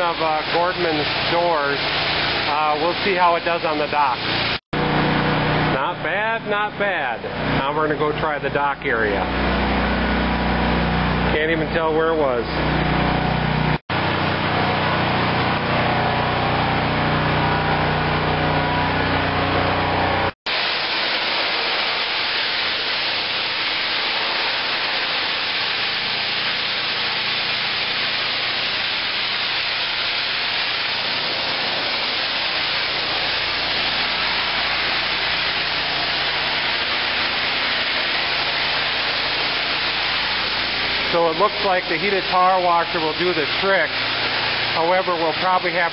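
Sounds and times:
high-pressure water spray hiss: 0.0s - 4.6s, 20.5s - 45.9s
pressure washer engine hum: 0.0s - 45.9s.

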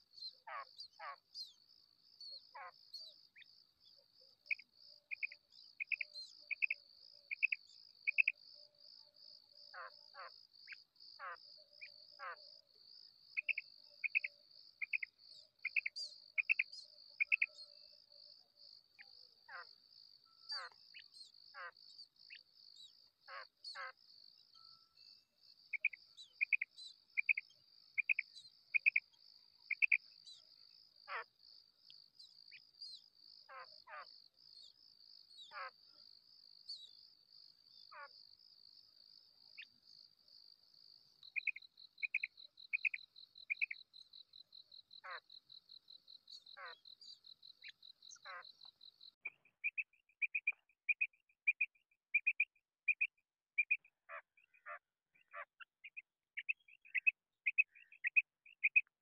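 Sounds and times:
quail calling: 48.1s - 48.5s, 53.6s - 55.6s.

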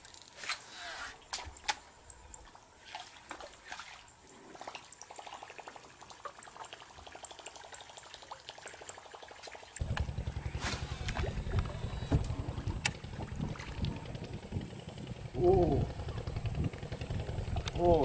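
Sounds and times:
water trickling and splashing: 1.2s - 15.0s.

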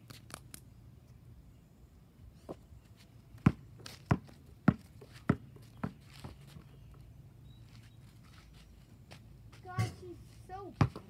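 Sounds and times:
basketball bouncing on asphalt: 3.4s - 6.6s, 9.5s - 11.0s.

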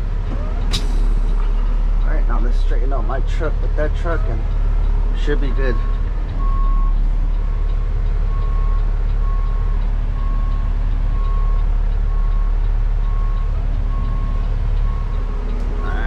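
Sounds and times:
diesel engine running: 0.0s - 16.0s
reverse alarm beeping: 5.7s - 7.0s.

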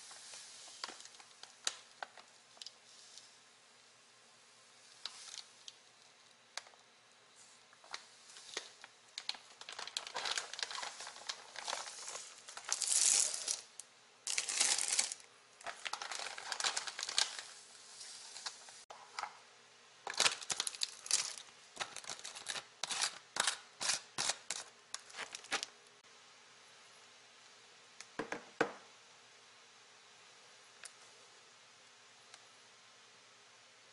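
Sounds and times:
sugar pouring hiss: 0.0s - 18.9s
plastic bag crinkling: 7.8s - 18.8s, 20.0s - 25.7s.

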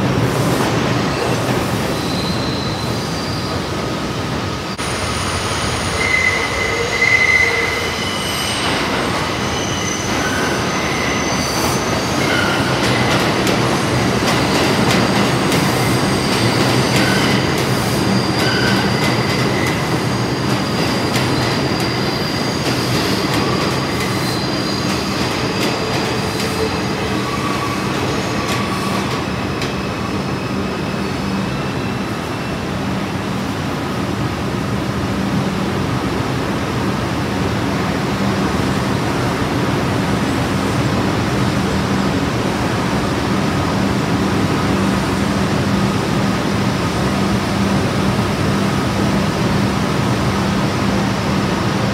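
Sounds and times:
train wheels squealing on rails: 0.4s - 33.4s.

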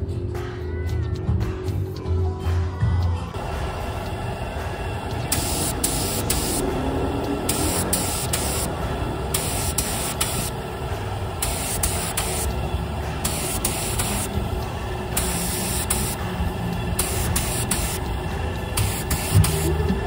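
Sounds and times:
spray gun hissing: 3.4s - 14.5s, 15.1s - 16.3s, 16.9s - 19.8s.

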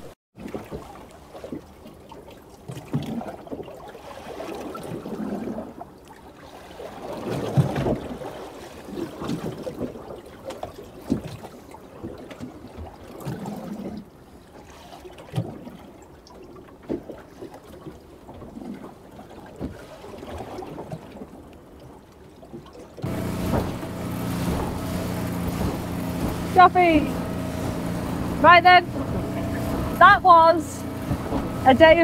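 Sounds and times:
water slapping against boat hull: 0.4s - 5.8s, 6.5s - 14.1s, 14.8s - 32.0s
short knocks: 23.0s - 30.1s, 30.8s - 31.7s.

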